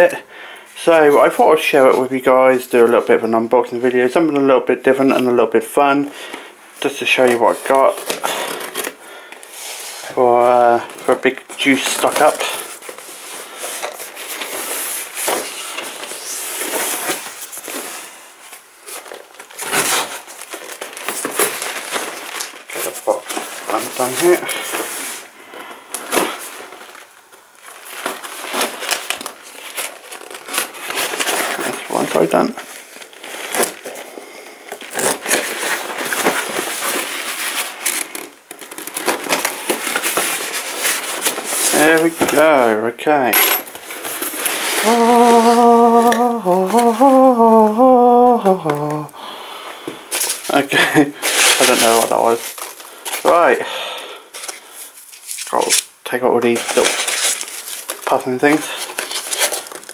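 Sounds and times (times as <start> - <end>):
packing tape tearing: 7.8 - 9.5, 11.6 - 25.3, 25.9 - 42.4, 43.7 - 49.1, 50.1 - 53.4, 54.3 - 59.9.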